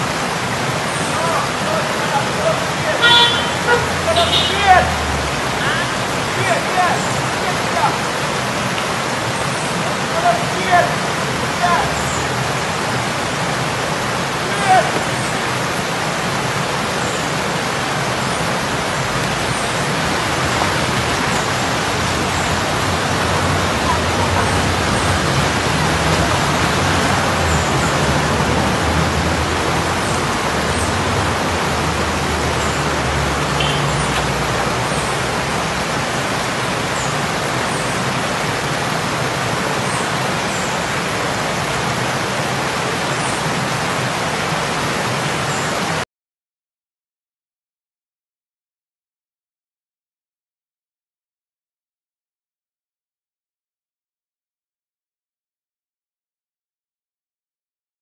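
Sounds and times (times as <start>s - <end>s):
car engine passing: 1.2s - 7.6s, 18.7s - 37.6s
loud rushing noise: 18.4s - 39.6s.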